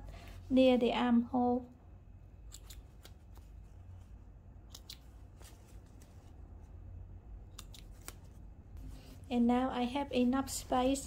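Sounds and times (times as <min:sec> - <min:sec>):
scissors snipping stitches: 0:02.4 - 0:03.6, 0:04.6 - 0:05.2, 0:07.5 - 0:08.3
fabric rustling: 0:05.1 - 0:06.9, 0:07.9 - 0:11.0.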